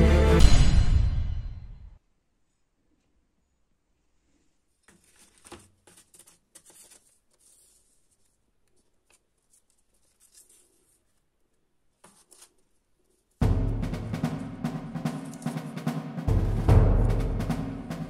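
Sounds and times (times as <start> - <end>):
paper templates rustling on cardboard: 4.7 - 13.4
light taps of paper set down: 4.8 - 11.2, 12.0 - 12.6
loud music with drums: 13.4 - 18.0.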